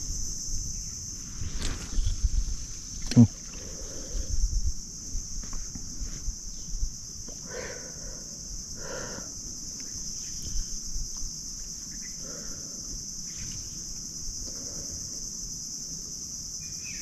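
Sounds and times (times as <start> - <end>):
wind rumble on microphone: 0.0 - 7.3
high-pitched insect drone: 0.0 - 17.0.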